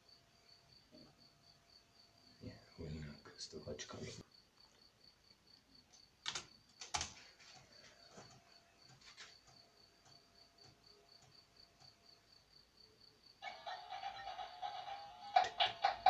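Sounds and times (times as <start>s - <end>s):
disk drive humming and ticking: 7.6s - 12.4s.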